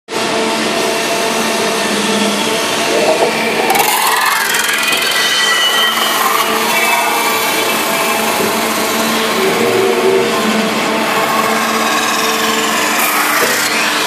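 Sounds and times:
metal spinning lathe running: 0.1s - 14.0s
whining tones: 0.2s - 14.0s.

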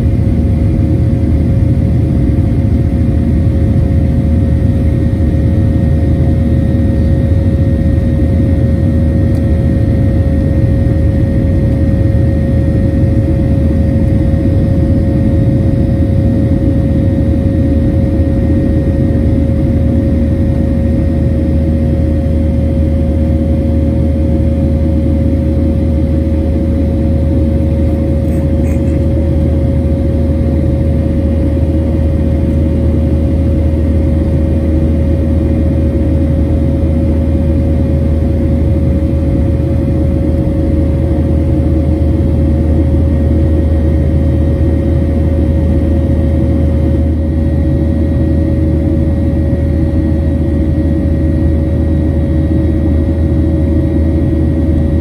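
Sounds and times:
airplane engine and airflow drone: 0.0s - 55.0s
constant whine: 0.0s - 55.0s.

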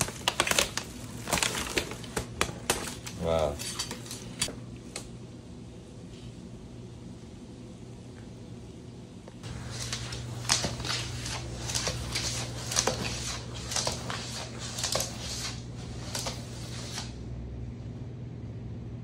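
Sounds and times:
claws scratching on floor: 9.4s - 17.2s.

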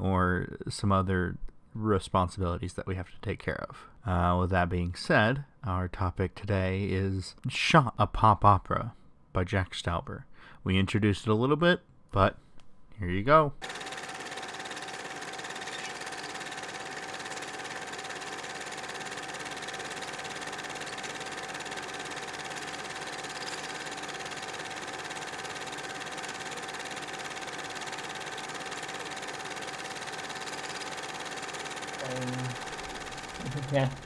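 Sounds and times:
mechanical running noise with whine: 13.6s - 34.0s.

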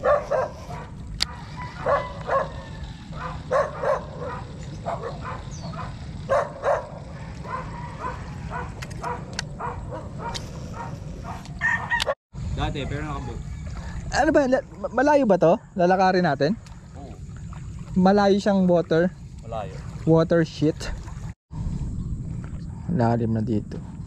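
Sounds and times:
dog barking: 0.0s - 12.2s.

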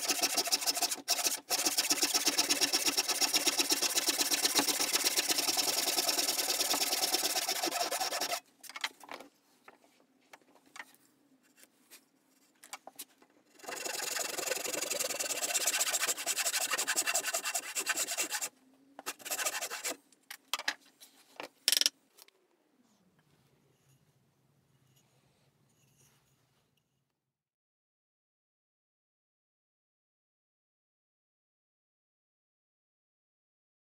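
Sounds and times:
hand saw cutting wood: 0.0s - 8.5s, 13.5s - 20.0s.

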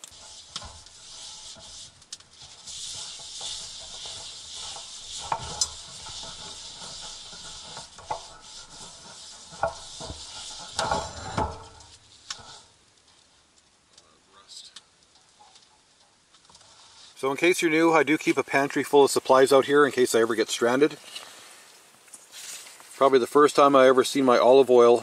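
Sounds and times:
pan clattering: 0.0s - 12.6s
oil sizzling while wiping pan: 0.0s - 13.6s, 16.7s - 25.0s.

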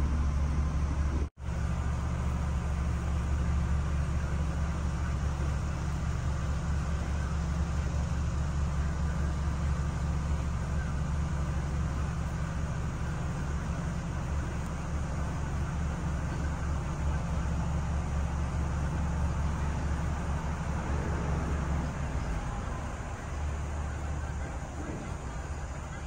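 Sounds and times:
ferry engine droning: 0.0s - 26.0s.

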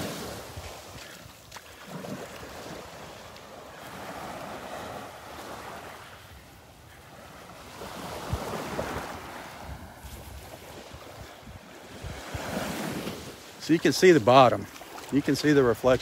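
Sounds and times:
small waves washing on sand: 0.0s - 16.0s
wind buffeting microphone: 6.2s - 13.4s.

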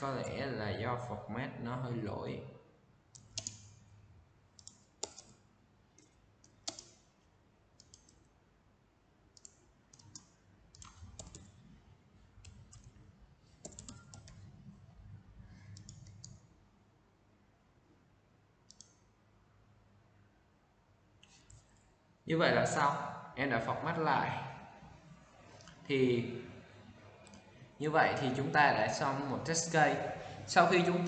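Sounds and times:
mouse clicks: 3.1s - 3.8s, 4.6s - 5.4s, 6.0s - 7.0s, 7.8s - 8.3s, 9.4s - 11.5s, 15.6s - 16.5s, 18.7s - 19.1s, 27.2s - 27.5s
keyboard keystrokes: 3.2s - 3.8s, 4.6s - 5.4s, 6.0s - 7.0s, 9.4s - 11.6s, 13.6s - 14.4s, 15.7s - 16.4s.

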